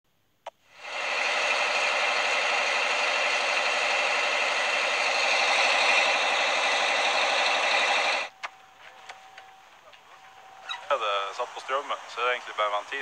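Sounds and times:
diesel engine running: 0.8s - 8.3s.

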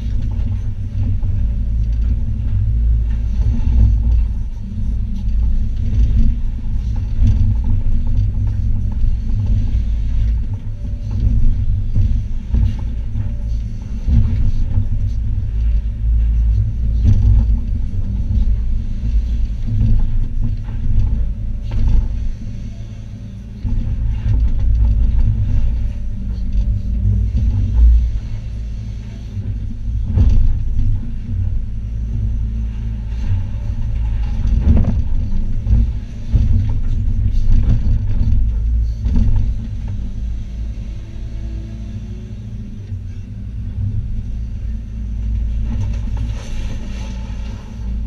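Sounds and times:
excavator engine rumble: 0.0s - 48.0s.

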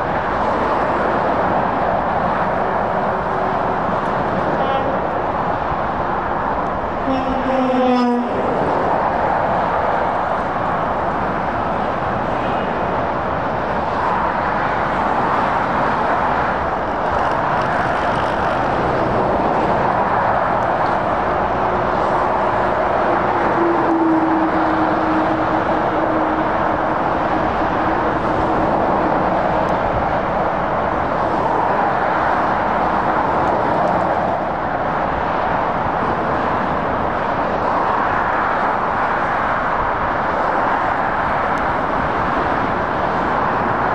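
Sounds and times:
heavy motorway traffic: 0.0s - 43.9s
low droning vehicle tone: 0.0s - 43.9s.

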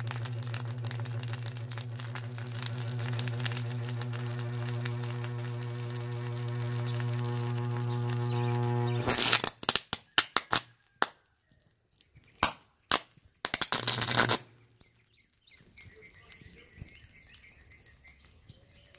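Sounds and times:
motor humming: 0.0s - 9.4s
electrical crackling and sputtering: 0.0s - 9.8s, 12.9s - 14.6s
faint birdsong: 5.8s - 9.1s, 14.5s - 18.9s.

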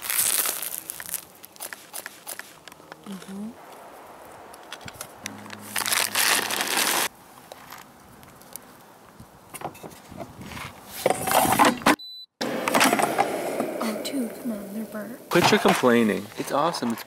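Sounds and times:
plastic bag crinkling: 0.0s - 3.4s, 5.5s - 7.1s.

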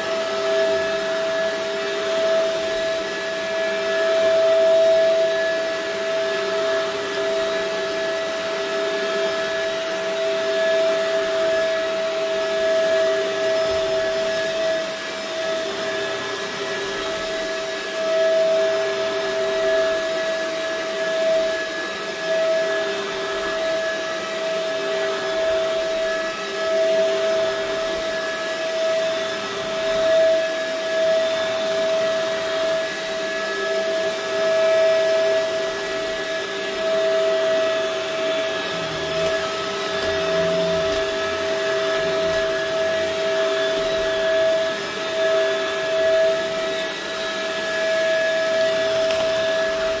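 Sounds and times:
upright vacuum cleaner running: 0.0s - 50.0s.

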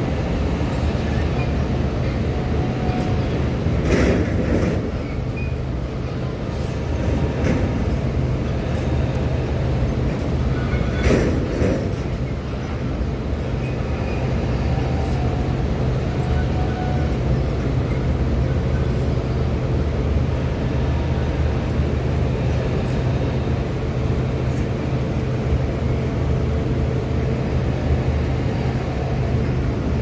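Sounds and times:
diesel ship engines rumbling: 0.0s - 30.0s.

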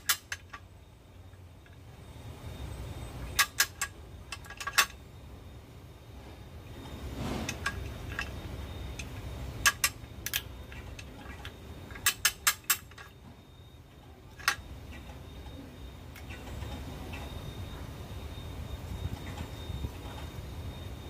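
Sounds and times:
metal tool clicking: 11.9s - 13.1s.

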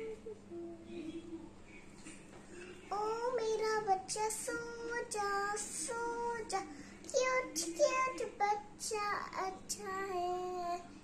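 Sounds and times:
girl singing a lullaby: 0.0s - 1.6s, 2.8s - 11.0s.

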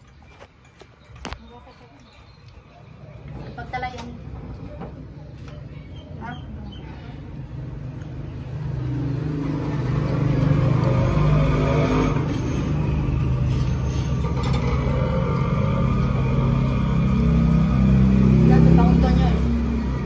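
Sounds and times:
vehicle engine running: 7.3s - 20.0s.

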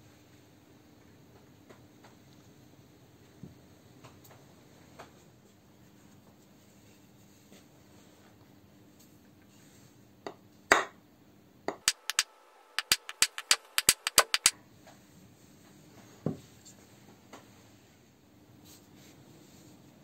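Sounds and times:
wooden block tapping metal: 11.7s - 14.5s
metal part knocked on bench: 11.8s - 14.5s.

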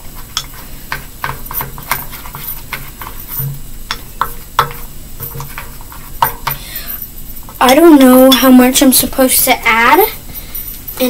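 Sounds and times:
utensil scraping metal bowl: 0.0s - 8.8s.

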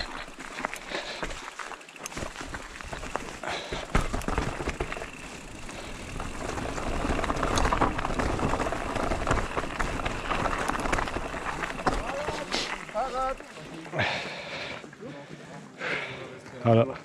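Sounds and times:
tyres on roots and stones: 0.0s - 17.0s
bike clattering knocks: 2.1s - 12.7s.

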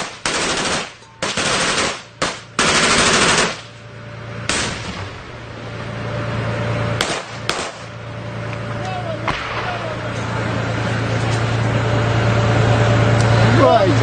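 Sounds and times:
automatic gunfire bursts: 0.0s - 3.7s
armored vehicle engine running: 0.0s - 14.0s.

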